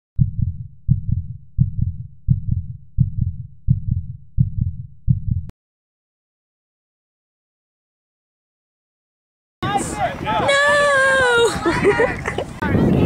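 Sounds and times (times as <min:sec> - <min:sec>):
heartbeat thumps: 0:00.2 - 0:05.5.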